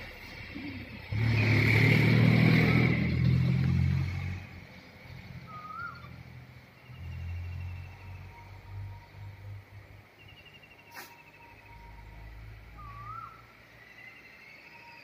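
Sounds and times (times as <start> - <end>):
vehicle engine running loud: 0.0 - 13.6
short high chirp: 10.3 - 11.9.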